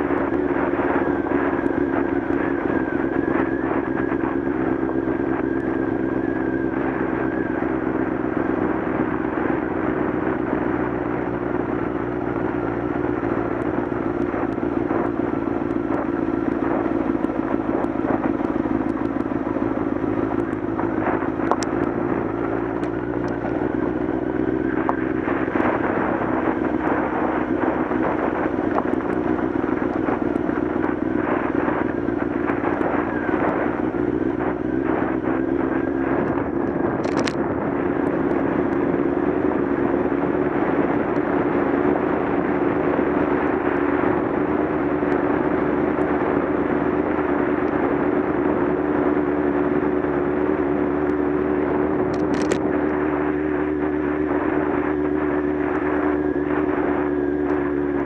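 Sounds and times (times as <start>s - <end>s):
motorcycle engine running: 0.0s - 58.0s
stones crackling under tyres: 10.9s - 39.6s, 50.1s - 56.1s.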